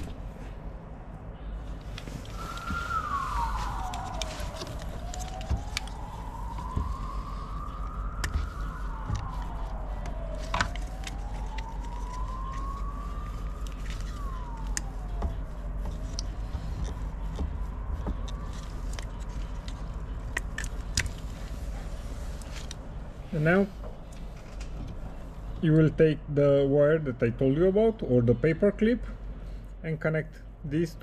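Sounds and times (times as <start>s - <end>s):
siren wailing: 0.0s - 24.4s.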